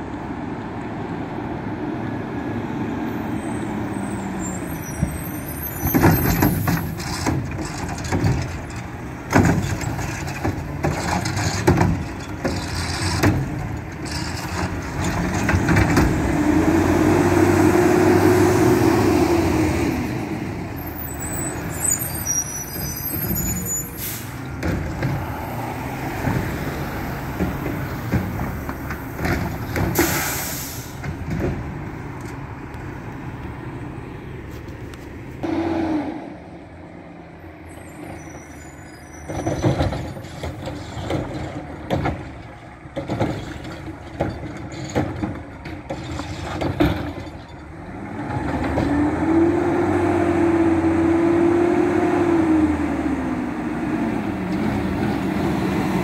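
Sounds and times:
diesel engine revving: 2.0 - 34.2, 35.4 - 56.0
metallic clanks and knocks: 5.9 - 16.2, 39.3 - 47.8
air brakes hissing: 21.2 - 24.5, 29.8 - 31.1.

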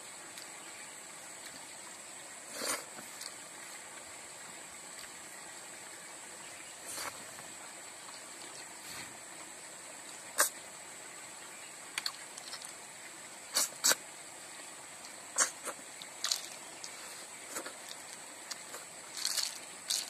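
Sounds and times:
wet slurps of snails sucked out: 2.5 - 3.3, 13.5 - 14.0, 15.3 - 20.0.

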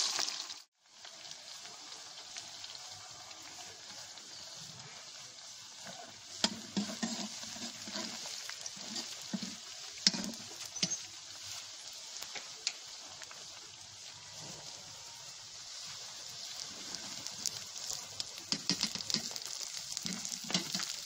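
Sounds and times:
food sizzling in a pan: 0.0 - 21.0
metal ladle scraping a pan: 5.1 - 11.6, 17.8 - 21.0.

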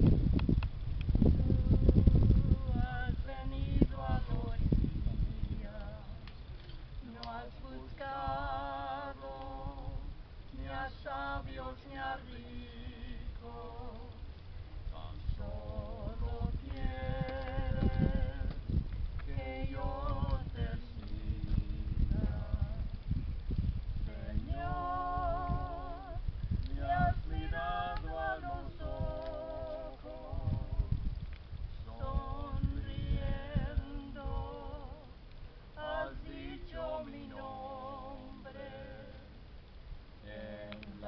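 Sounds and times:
low rumble: 0.0 - 41.0
person singing with vibrato: 7.0 - 14.3, 19.3 - 23.0, 24.0 - 31.1, 31.8 - 39.4.

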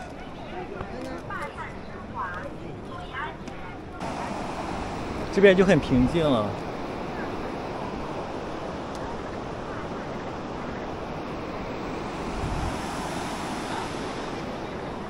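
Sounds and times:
wind buffeting microphone: 3.9 - 15.0
river water rushing: 4.0 - 15.0.

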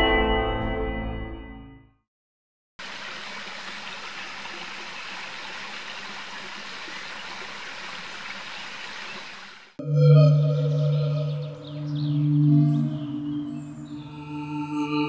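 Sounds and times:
stream water rushing: 2.8 - 9.8.

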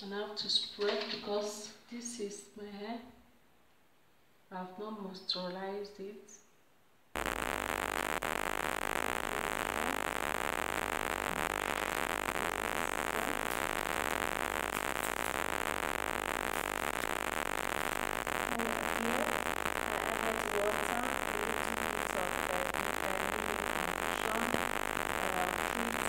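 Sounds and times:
loud steady hiss: 7.2 - 26.0
low hum: 7.2 - 26.0.

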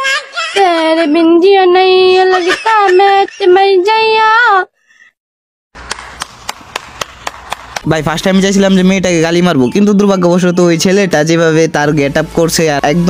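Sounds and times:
slow clapping: 5.8 - 7.9.

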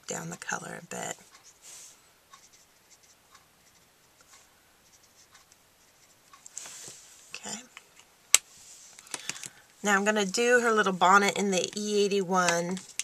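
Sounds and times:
marker scratching on cardstock: 2.3 - 3.9, 4.8 - 6.2.

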